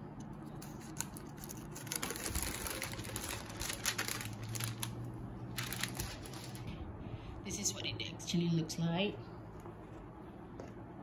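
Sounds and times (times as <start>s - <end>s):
paper wrapping rustling: 0.6s - 6.7s.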